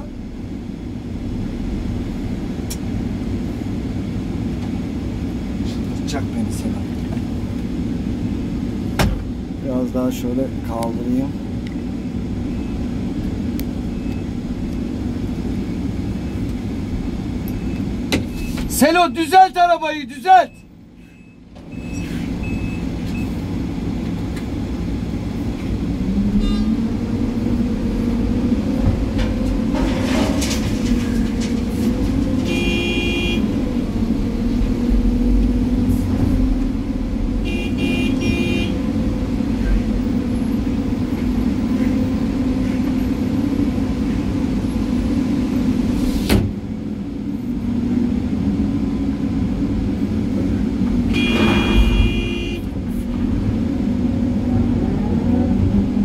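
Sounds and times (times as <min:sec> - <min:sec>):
excavator engine running: 0:00.0 - 0:56.0
short horn beeps: 0:26.4 - 0:26.8, 0:32.5 - 0:33.5, 0:37.5 - 0:38.7, 0:51.1 - 0:52.7.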